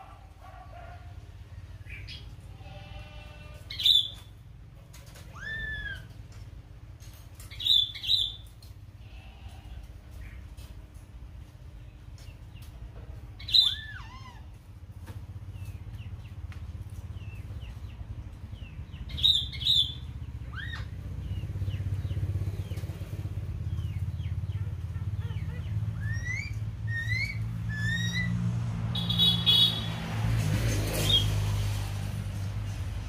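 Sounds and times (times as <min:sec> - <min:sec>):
vehicle engine hum: 0:00.0 - 0:33.0
bird chirping and whistling: 0:03.7 - 0:04.2, 0:07.5 - 0:08.5, 0:13.4 - 0:14.2, 0:19.1 - 0:20.9, 0:26.0 - 0:28.4.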